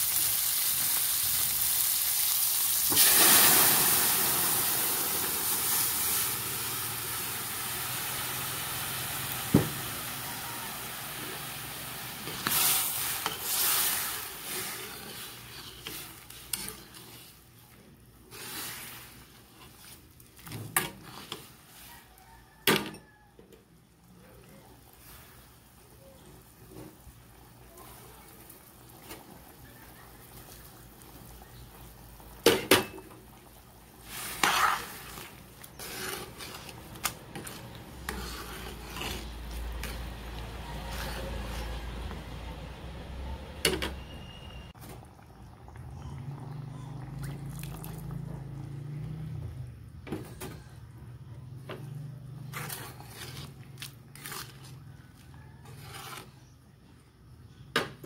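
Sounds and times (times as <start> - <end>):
spatula stirring soup in pot: 9.7 - 22.1, 33.3 - 43.1, 51.8 - 56.6.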